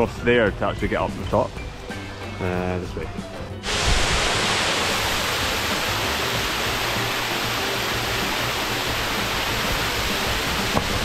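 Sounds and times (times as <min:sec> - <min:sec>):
small waterfall splashing into pool: 0:03.6 - 0:11.0.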